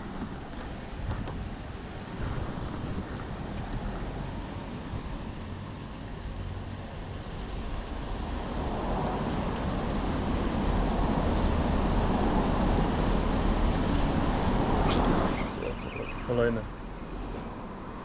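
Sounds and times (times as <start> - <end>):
road vehicle passing: 1.8 - 18.0
sharp click: 14.9 - 15.2.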